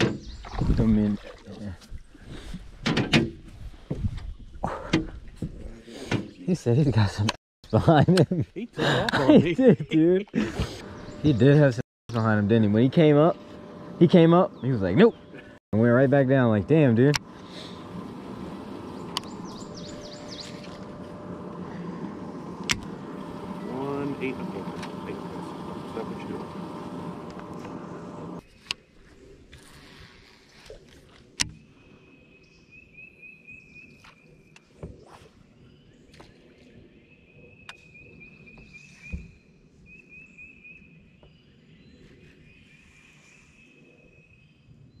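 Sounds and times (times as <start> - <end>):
low hum: 10.4 - 28.5
faint steady whine: 10.8 - 28.4
bird chirping: 18.8 - 21.0
sharp clicks: 19.1 - 19.3.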